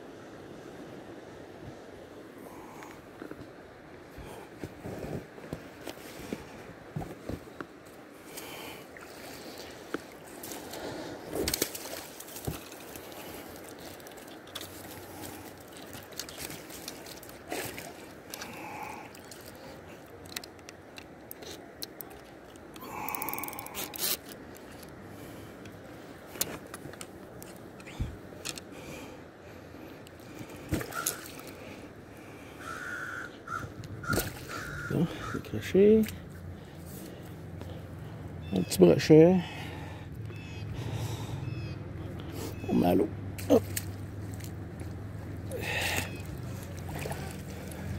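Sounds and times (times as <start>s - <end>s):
river water washing: 7.7s - 29.2s, 34.0s - 47.9s
bird calls: 32.6s - 36.0s, 37.2s - 43.7s, 45.5s - 47.9s.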